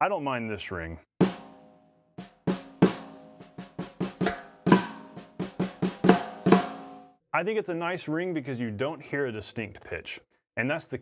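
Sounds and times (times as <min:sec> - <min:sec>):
snare drum strokes: 0:02.5 - 0:07.0.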